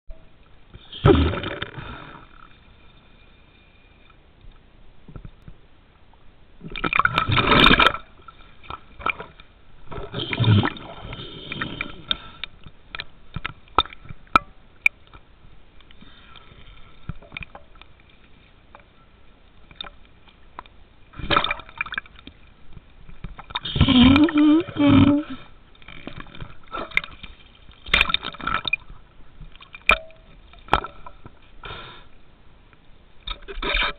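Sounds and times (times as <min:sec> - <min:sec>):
underwater rushing water: 0:06.6 - 0:14.4.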